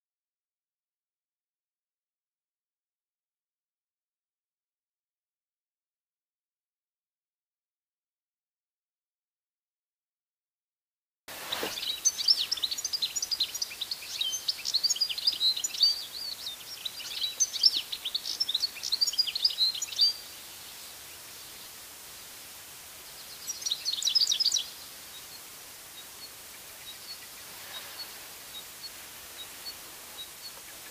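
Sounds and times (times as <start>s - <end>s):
goldfinch twittering song: 11.4s - 21.8s, 23.0s - 30.9s.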